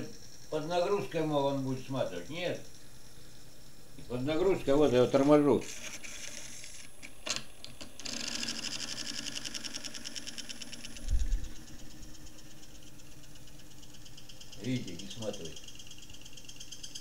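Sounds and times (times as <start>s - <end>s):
electric motor buzzing scrape: 4.0s - 7.0s, 8.0s - 12.2s.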